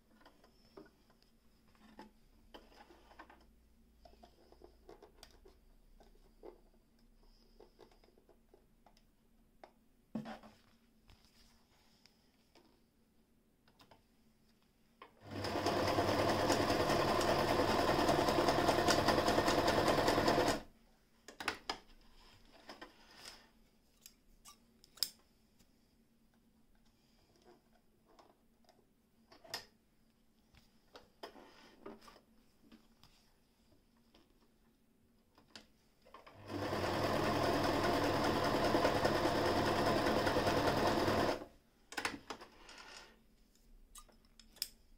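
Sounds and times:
electric sewing machine stitching: 15.2 - 20.7, 36.3 - 41.5.

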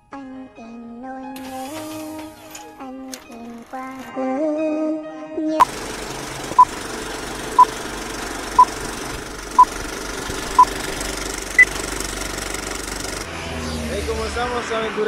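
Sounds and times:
film projector clatter: 5.6 - 13.3.

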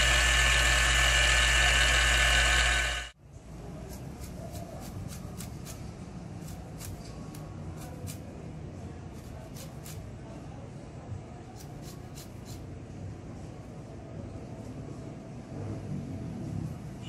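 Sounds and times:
steady low hum: 0.0 - 3.2.

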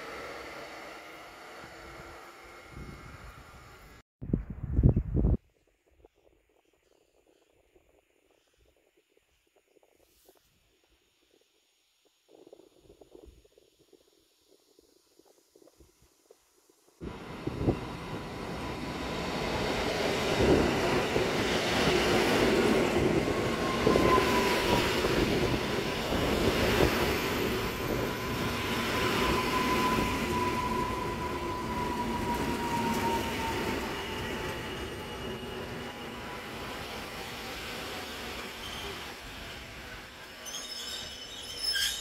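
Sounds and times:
train wheels rumbling on rails: 17.0 - 42.0
train brake squeal: 23.2 - 25.8, 27.7 - 36.8, 38.1 - 39.6, 40.2 - 42.0.

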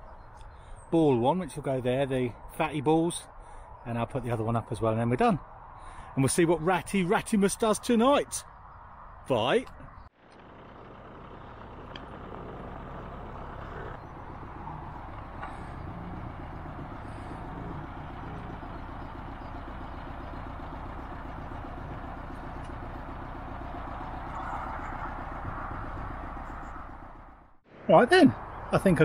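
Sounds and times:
engine idling: 10.2 - 27.6.

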